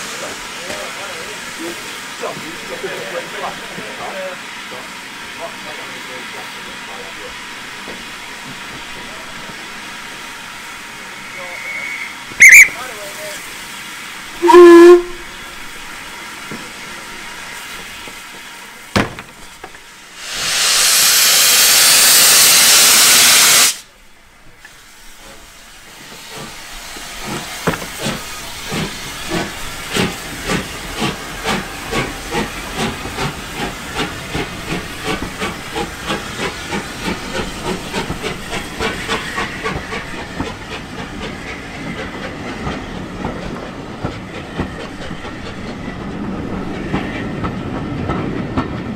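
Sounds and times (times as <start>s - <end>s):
loud steam hiss: 0.0s - 45.8s
steam whistle blast: 11.4s - 12.9s, 14.4s - 15.3s
train rolling with rhythmic beat: 14.3s - 15.4s, 25.8s - 48.9s.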